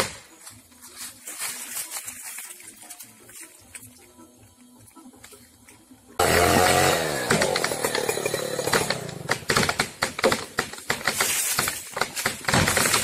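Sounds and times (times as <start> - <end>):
chainsaw running: 6.2 - 9.7.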